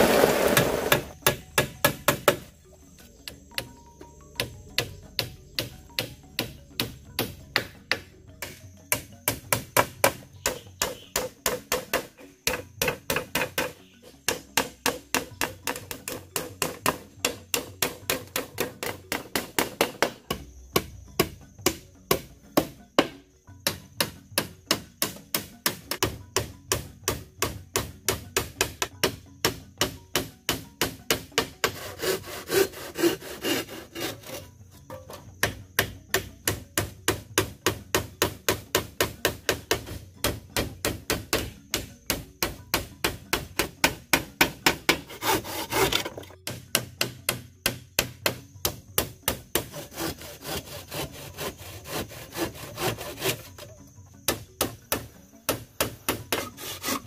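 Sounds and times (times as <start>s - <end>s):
hammer driving nails into wood: 0.1s - 2.5s.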